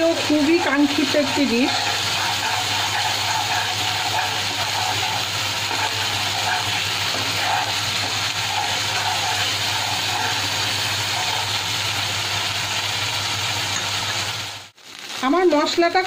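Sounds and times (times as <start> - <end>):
spatula stirring in pan: 0.0 - 14.3
paste sizzling in oil: 0.0 - 16.0.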